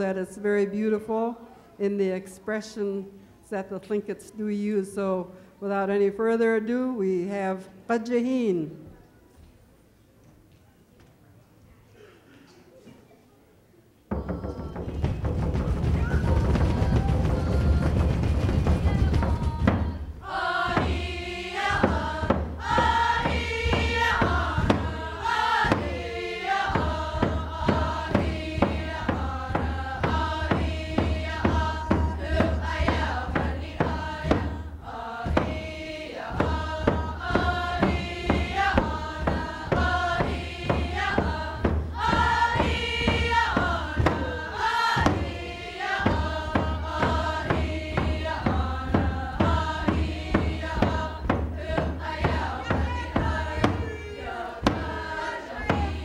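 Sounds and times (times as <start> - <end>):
steady drum beat: 14.1 - 56.0
group singing in unison: 16.0 - 56.0.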